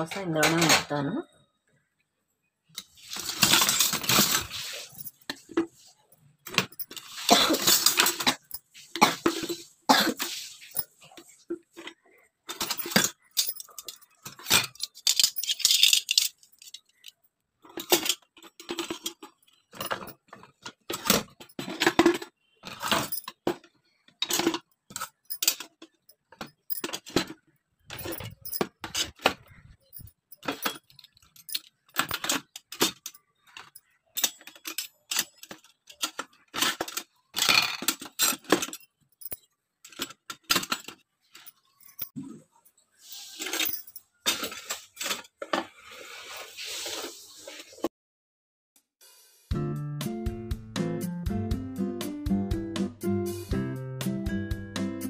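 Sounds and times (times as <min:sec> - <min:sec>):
steel utensils clinking: 0:02.8 - 0:42.4, 0:43.0 - 0:45.6.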